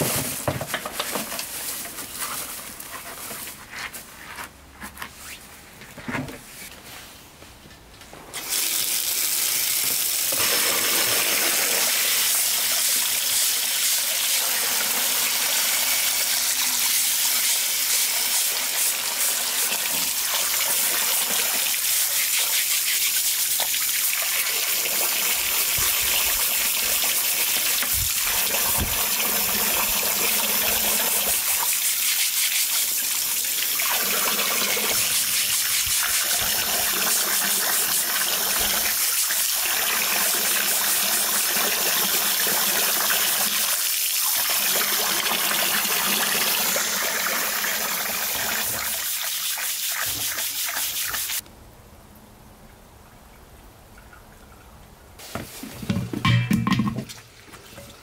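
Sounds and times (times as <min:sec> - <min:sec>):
tap water gushing into basin: 0:08.4 - 0:51.4
brush scrubbing with splashing: 0:30.7 - 0:33.2, 0:33.8 - 0:37.2, 0:48.6 - 0:51.4.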